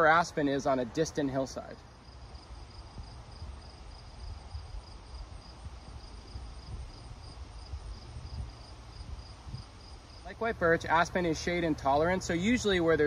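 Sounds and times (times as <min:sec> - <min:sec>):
insect chirping: 0:01.8 - 0:12.4
wind gusting on microphone: 0:02.6 - 0:11.3.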